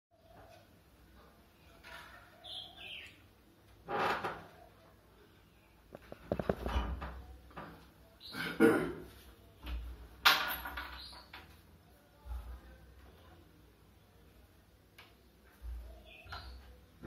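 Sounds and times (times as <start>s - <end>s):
camera handling knocks and rustles: 6.0s - 6.8s.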